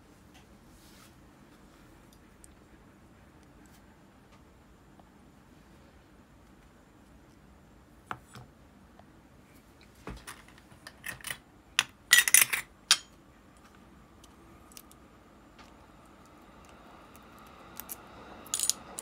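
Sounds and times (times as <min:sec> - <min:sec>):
metal parts clinking on wooden table: 0:10.3 - 0:13.1.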